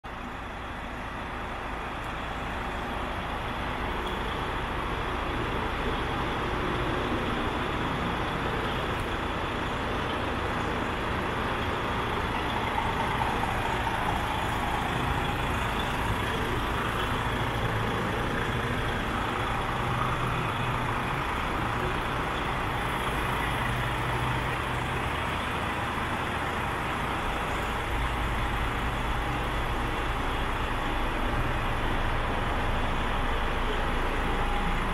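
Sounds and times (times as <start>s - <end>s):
diesel truck engine idling: 0.1s - 34.9s.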